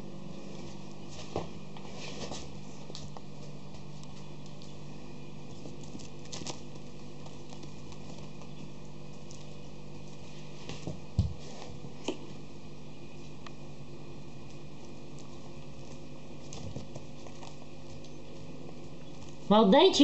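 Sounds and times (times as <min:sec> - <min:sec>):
steady low hum: 0:00.0 - 0:20.0
puppy paws pattering on wood: 0:00.4 - 0:12.4, 0:14.3 - 0:20.0.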